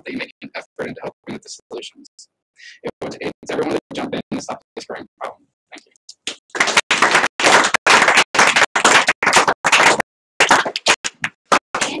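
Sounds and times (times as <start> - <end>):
audience applauding: 6.5 - 11.6.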